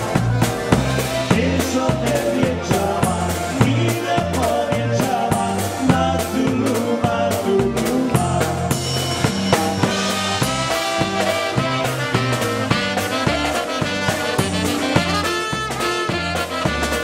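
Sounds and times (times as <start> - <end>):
drum kit beat: 0.0 - 17.0
polka band playing: 0.0 - 17.0
saxophone: 8.4 - 17.0.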